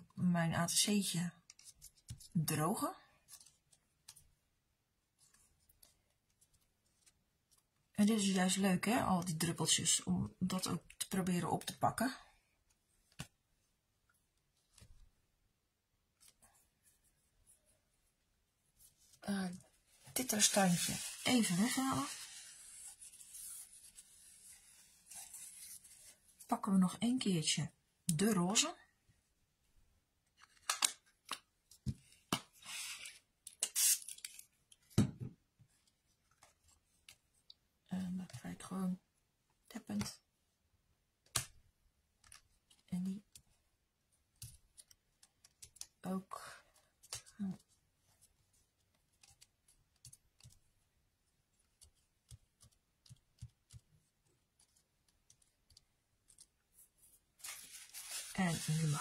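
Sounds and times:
paper strips tapping and clicking: 41.2s - 43.6s, 44.2s - 46.0s, 46.7s - 56.7s.

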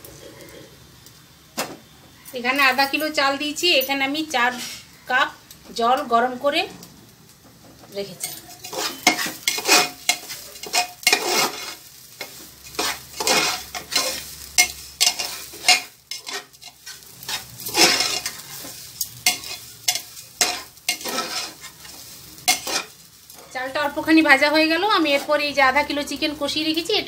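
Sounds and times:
rice sizzling in oil: 0.0s - 27.0s
utensil scraping pot: 8.2s - 23.6s.

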